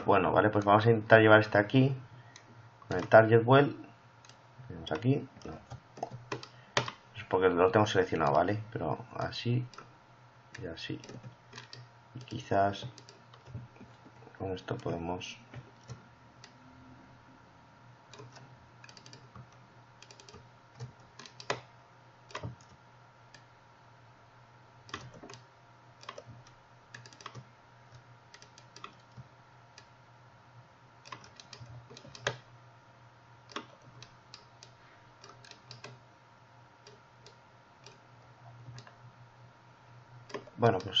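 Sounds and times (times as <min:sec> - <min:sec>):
faint steady hum: 0:00.0 - 0:41.0
keyboard clicks: 0:02.4 - 0:03.2, 0:04.2 - 0:07.0, 0:10.6 - 0:13.6, 0:18.1 - 0:21.7, 0:22.3 - 0:22.8, 0:24.9 - 0:25.4, 0:26.0 - 0:29.3, 0:31.0 - 0:32.4, 0:33.5 - 0:36.0, 0:40.3 - 0:41.0
computer mouse clicks: 0:04.2 - 0:07.0, 0:09.7 - 0:09.9, 0:10.6 - 0:14.0, 0:15.6 - 0:16.6, 0:18.1 - 0:21.7, 0:22.3 - 0:23.5, 0:24.8 - 0:29.9, 0:31.0 - 0:32.5, 0:33.5 - 0:36.0, 0:36.8 - 0:38.0, 0:38.6 - 0:39.0, 0:40.3 - 0:41.0.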